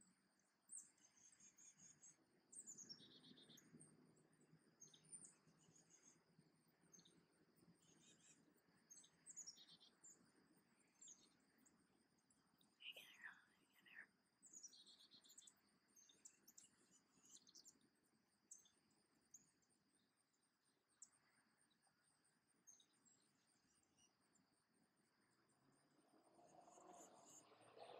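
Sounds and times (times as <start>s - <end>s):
bird chirps and twittering: 0.7s - 3.8s.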